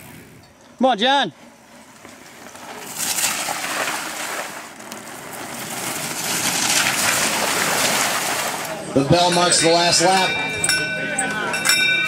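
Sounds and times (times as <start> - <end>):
bike tyres crunching over gravel: 0.0 - 9.1.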